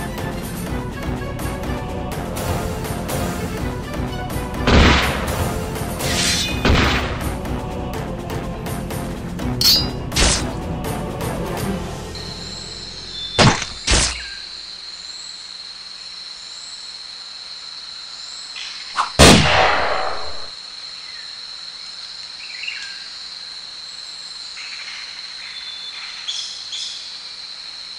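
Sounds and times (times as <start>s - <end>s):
sharp bangs: 4.6s - 7.3s, 19.2s - 20.5s
insects droning: 7.4s - 27.9s
faint bird chirps: 12.2s - 15.4s, 22.4s - 23.2s, 24.5s - 27.2s.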